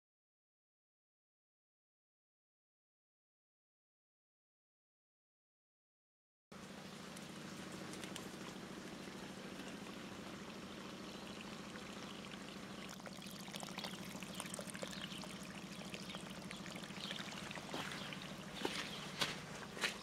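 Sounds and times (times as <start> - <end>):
low hum: 6.6 - 20.0
water trickling along muddy channel: 6.6 - 20.0.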